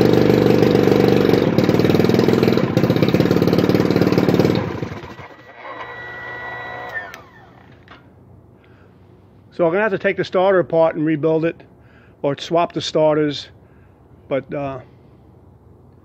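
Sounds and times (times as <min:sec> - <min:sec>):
outboard motor running: 0:00.0 - 0:07.6.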